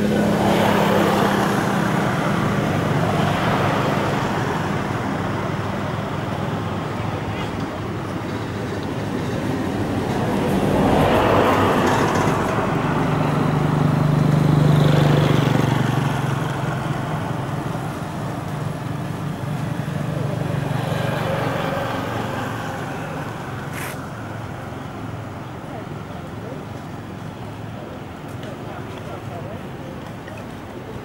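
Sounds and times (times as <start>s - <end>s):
vehicle engine passing by: 0.0s - 5.8s, 9.6s - 26.6s.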